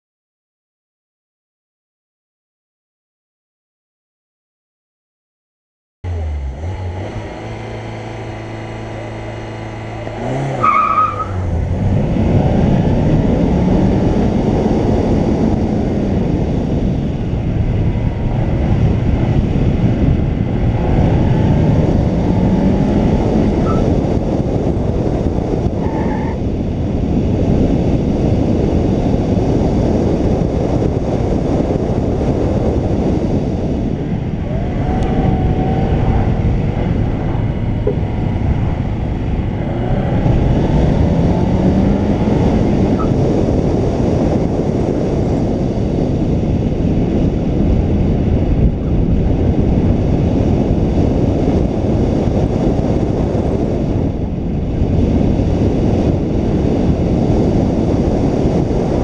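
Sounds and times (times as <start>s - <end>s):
car engine revving: 6.0s - 59.0s
tyre squeal: 10.5s - 11.5s, 23.6s - 23.9s.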